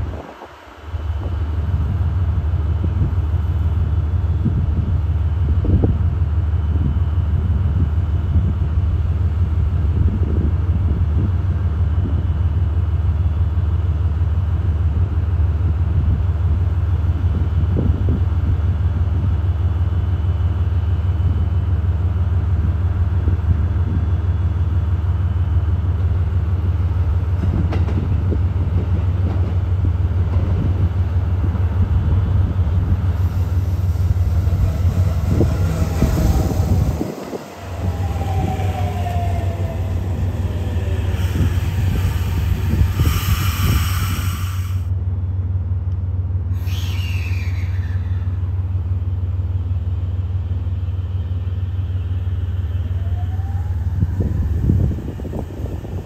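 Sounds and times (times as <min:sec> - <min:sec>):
diesel locomotive engine running: 0:00.0 - 0:56.0.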